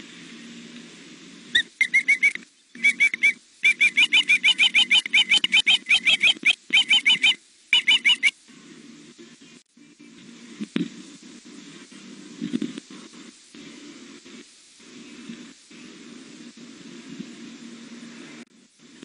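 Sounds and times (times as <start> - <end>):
young osprey chirping: 1.6 - 8.3.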